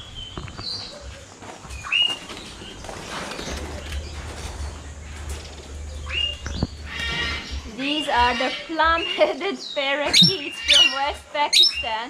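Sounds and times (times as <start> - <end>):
low background rumble: 3.4 - 9.0.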